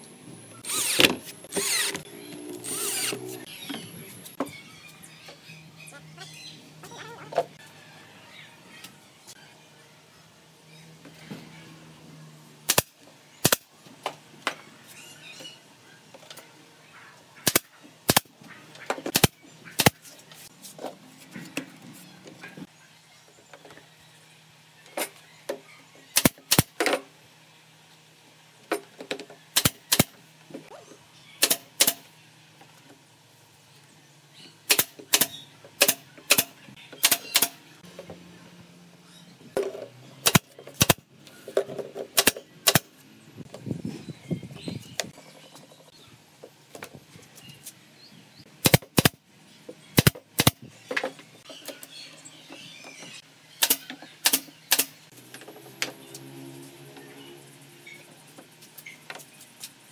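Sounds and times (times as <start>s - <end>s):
nail gun firing into wood: 12.7s - 13.7s, 17.4s - 18.3s, 19.1s - 20.0s, 26.2s - 26.8s, 29.5s - 30.2s, 34.7s - 37.6s, 40.2s - 41.0s, 42.2s - 42.9s, 48.6s - 49.2s, 50.0s - 50.6s, 53.6s - 55.0s.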